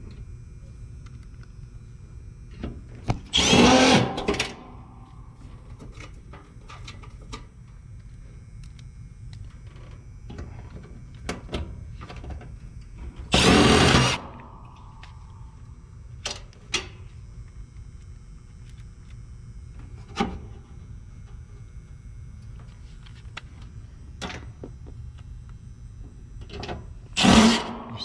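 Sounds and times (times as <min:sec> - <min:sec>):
cordless driver spinning screws: 0:03.3 - 0:04.3.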